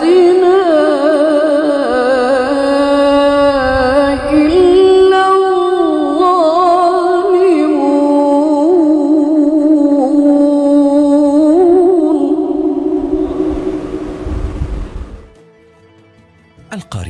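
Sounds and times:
woman reciting melodically: 0.0s - 13.4s.

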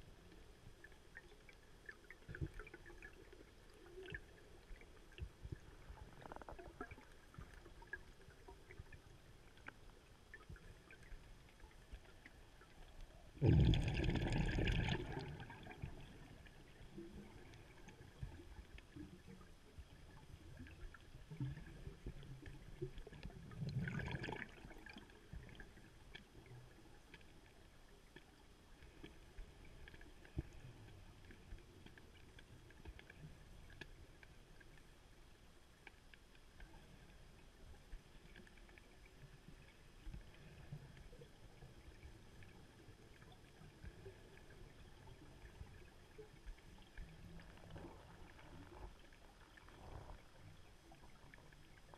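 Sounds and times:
small underwater clicks: 0.0s - 51.9s
diver exhaling bubbles: 13.4s - 15.6s.

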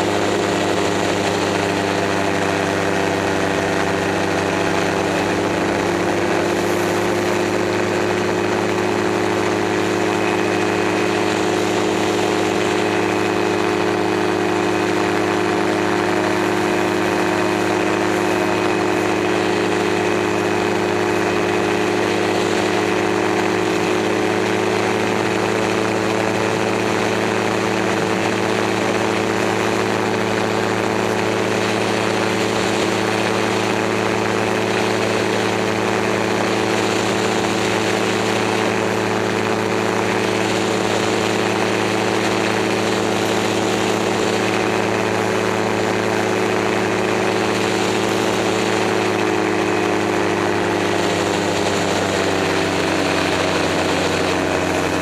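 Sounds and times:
aircraft engine and propeller: 0.0s - 55.0s.

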